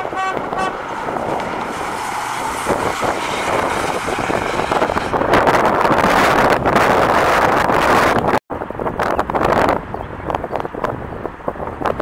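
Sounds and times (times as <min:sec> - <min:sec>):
car horn toot: 0:00.0 - 0:00.8
wind on microphone: 0:00.0 - 0:12.0
car engine driving away: 0:00.5 - 0:06.5.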